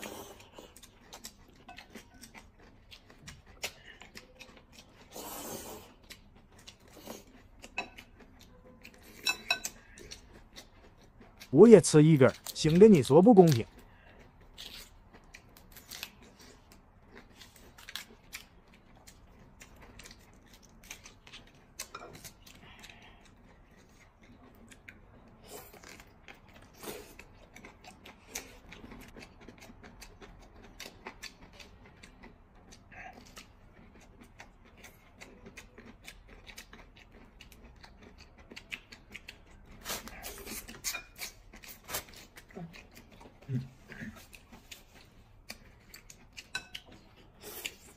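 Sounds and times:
lip smacks and chewing: 0:12.3 - 0:47.9.

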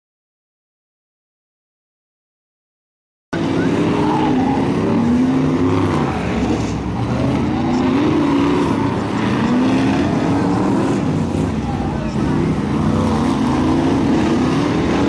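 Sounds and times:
race car engines revving: 0:03.4 - 0:15.0.

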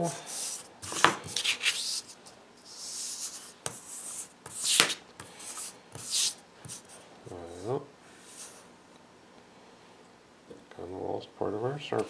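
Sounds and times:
compass scratching on paper: 0:00.1 - 0:08.7.

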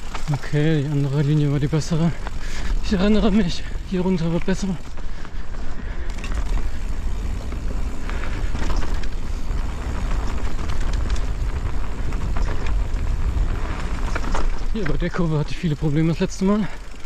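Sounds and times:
bike rattling and clicking: 0:00.0 - 0:17.0
tyres crunching on trail: 0:00.0 - 0:17.0
wind rumble on microphone: 0:05.1 - 0:15.0.

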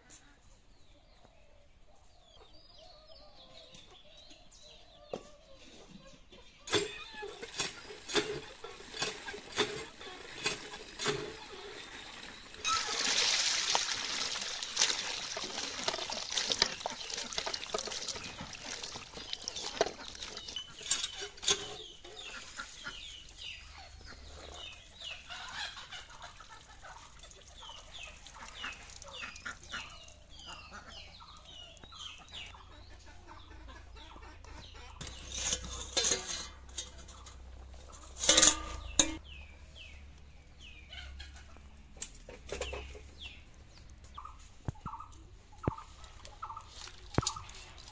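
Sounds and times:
chickens clucking: 0:00.0 - 0:47.9
water gushing into metal bowl: 0:07.4 - 0:21.7.

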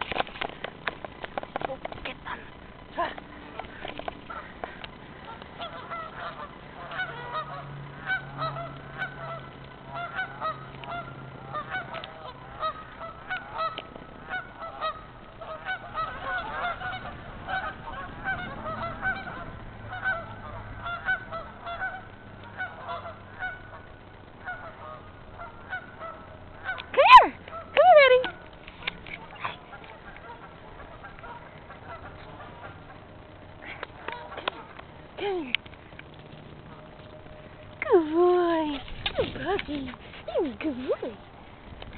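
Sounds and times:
geese honking: 0:01.6 - 0:35.1.

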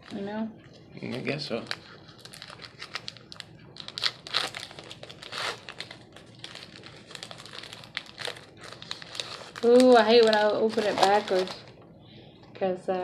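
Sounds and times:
card pack wrapper crinkling and tearing: 0:01.0 - 0:11.8.

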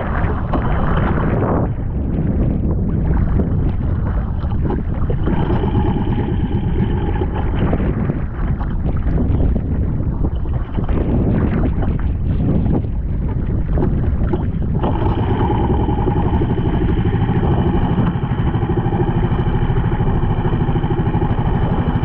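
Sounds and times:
waves slapping a boat hull: 0:00.0 - 0:22.0
wind buffeting the microphone: 0:00.0 - 0:22.0
faint steady whine: 0:05.0 - 0:08.4, 0:14.3 - 0:22.0.

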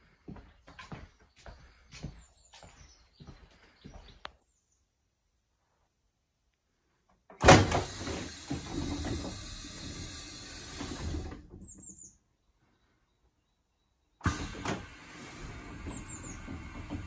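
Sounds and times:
door mechanism running: 0:07.4 - 0:11.8, 0:14.2 - 0:17.0
train door clunk: 0:14.2 - 0:17.0.

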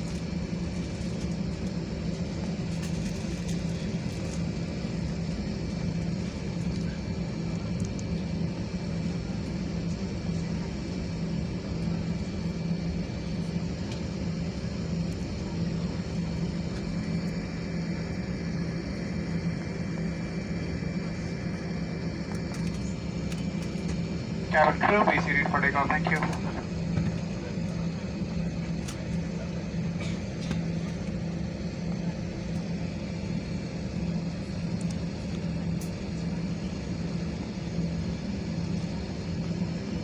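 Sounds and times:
jet engines low drone: 0:00.0 - 0:40.0
faint high whine: 0:14.0 - 0:40.0.

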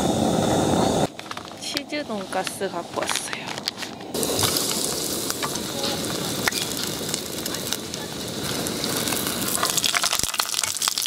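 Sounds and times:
food deep-frying in oil: 0:04.1 - 0:11.0.

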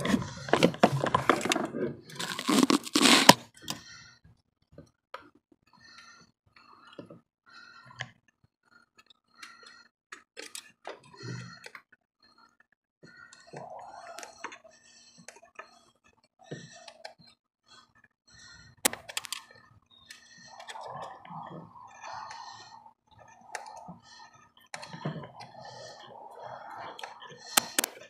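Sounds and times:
hand tool clicking: 0:27.6 - 0:28.0.

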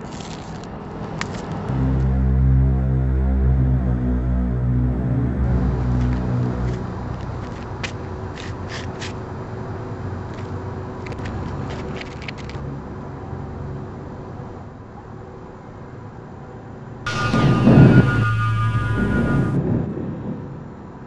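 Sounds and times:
steady low rumble: 0:01.7 - 0:08.7, 0:17.1 - 0:20.4.

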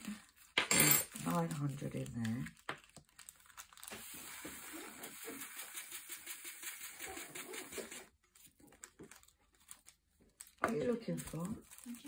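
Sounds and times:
small plastic beads pouring: 0:01.1 - 0:08.2.

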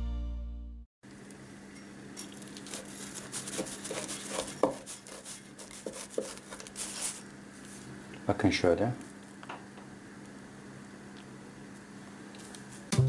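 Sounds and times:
knife cutting crispy flatbread: 0:02.6 - 0:07.2.

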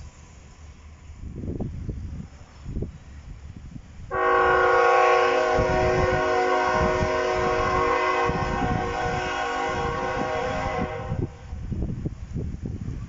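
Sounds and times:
locomotive air horn blast: 0:04.1 - 0:11.6.

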